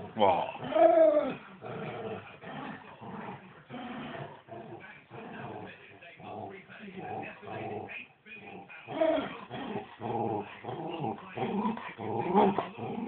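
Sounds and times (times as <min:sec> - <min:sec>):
dog grumbling vocal sounds: 0:00.0 - 0:05.7, 0:08.6 - 0:13.0.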